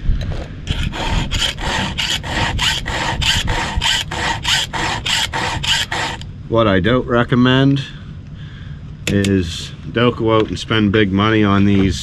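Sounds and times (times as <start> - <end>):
file sharpening chainsaw chain: 0.7 - 6.2.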